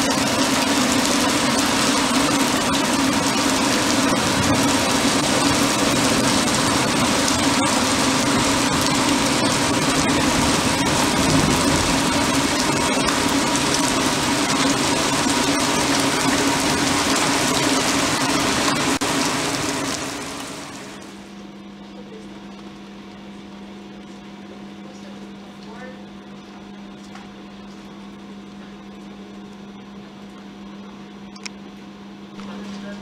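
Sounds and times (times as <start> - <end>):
heavy rain pouring: 0.0 - 21.2
low hum: 0.0 - 21.4.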